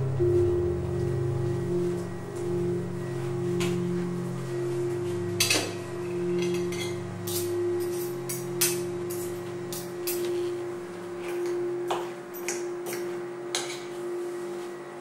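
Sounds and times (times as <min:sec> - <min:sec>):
soft background music: 0:00.0 - 0:15.0
cutlery clinking on plates: 0:11.2 - 0:14.0.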